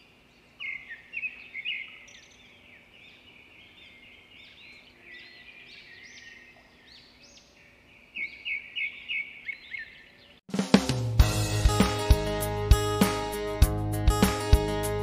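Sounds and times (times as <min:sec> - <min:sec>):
birds chirping and whistling: 0:00.6 - 0:10.4.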